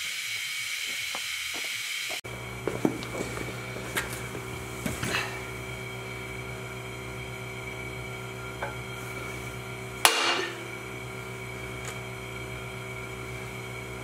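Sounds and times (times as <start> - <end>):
steady background hum: 0.0 - 14.0
hammer strike on steel: 10.0 - 10.7.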